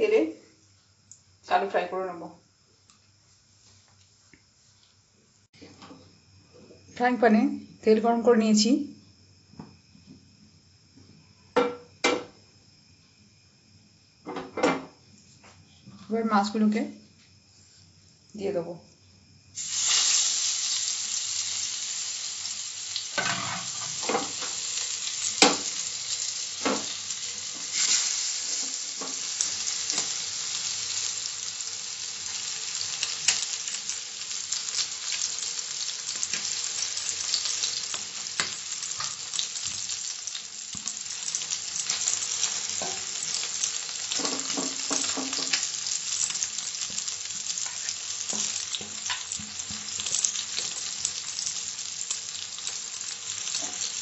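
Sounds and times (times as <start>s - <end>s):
oil sizzling and crackling: 19.2s - 54.0s
sharp clicks of fish in pan: 38.3s - 39.2s.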